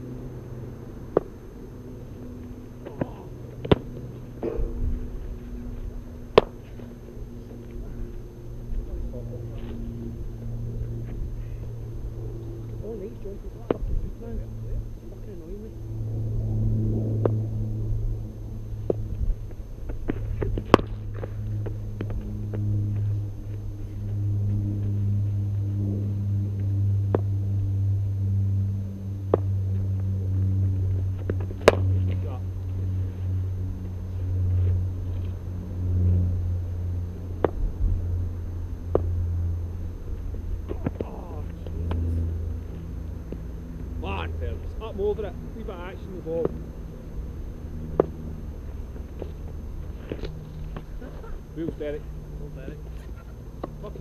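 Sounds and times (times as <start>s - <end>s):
steady low hum: 0.0s - 54.0s
cricket bat striking ball: 2.8s - 4.7s, 6.3s - 6.6s, 31.6s - 32.2s.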